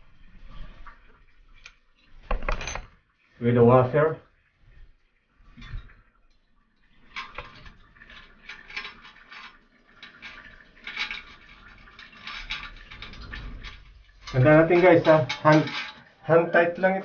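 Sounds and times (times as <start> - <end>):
bolts clinking on porcelain: 2.3 - 2.9, 14.2 - 16.1.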